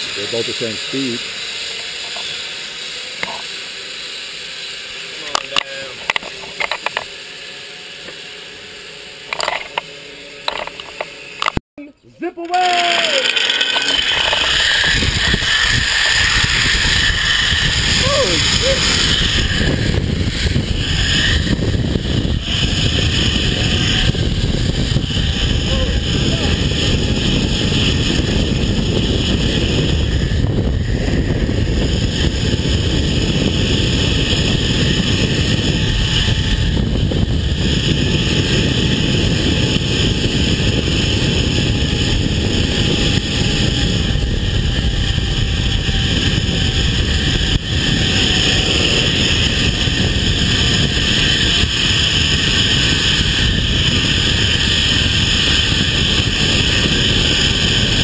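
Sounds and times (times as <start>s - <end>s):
zip line pulleys whirring: 0.0s - 11.6s, 12.2s - 58.0s
wind buffeting microphone: 14.0s - 58.0s.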